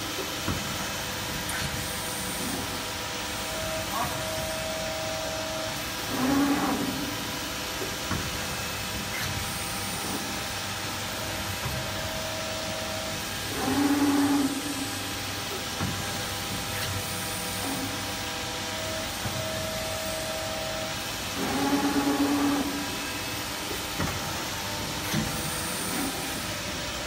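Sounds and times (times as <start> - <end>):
press brake hum and hiss: 0.0 - 27.0.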